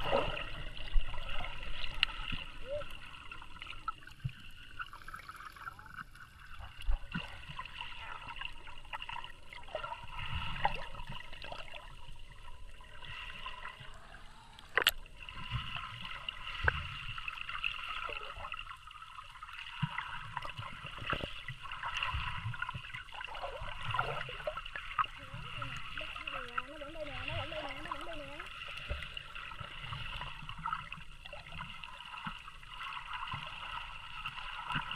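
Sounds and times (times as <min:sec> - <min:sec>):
low underwater rumbles: 0:00.0 - 0:34.9
muffled underwater water movement: 0:00.0 - 0:34.9
sharp underwater clicks: 0:14.5 - 0:15.1.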